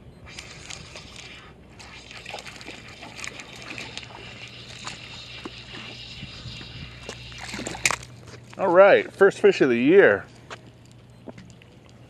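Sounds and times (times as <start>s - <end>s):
fishing reel cranking: 0.3s - 8.1s
fish splashing at surface: 0.3s - 8.2s
reel clicks: 0.3s - 8.6s.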